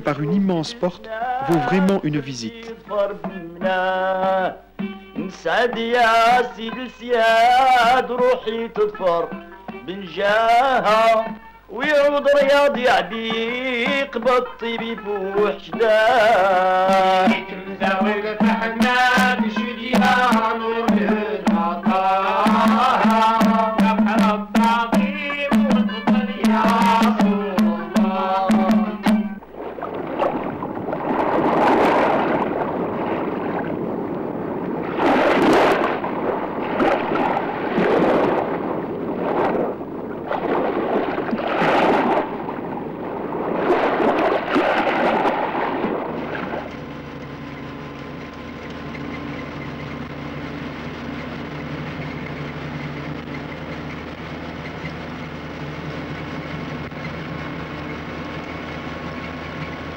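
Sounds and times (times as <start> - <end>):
sea waves breaking: 24.6 - 59.9
vehicle engine and road noise: 29.4 - 59.9.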